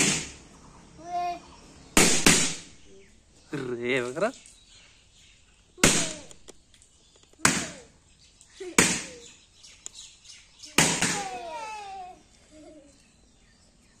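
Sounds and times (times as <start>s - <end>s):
balloons popping: 8.8s - 9.2s.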